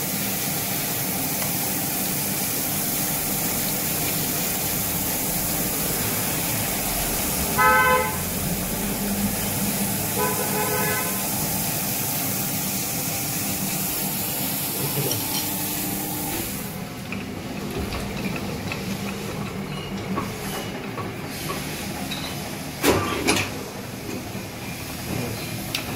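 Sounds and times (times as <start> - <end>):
grinding wheel and coolant hiss: 0.0 - 25.9
short horn honks: 7.6 - 8.3, 10.2 - 11.3.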